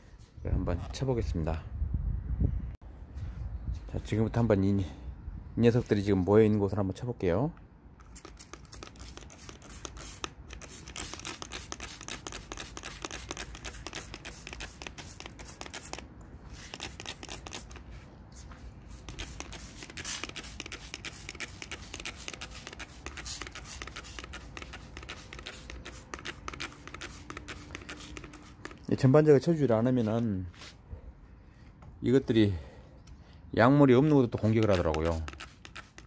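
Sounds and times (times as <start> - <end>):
spray bottle spritzing: 8.0 - 17.8, 18.9 - 28.9, 34.4 - 36.0.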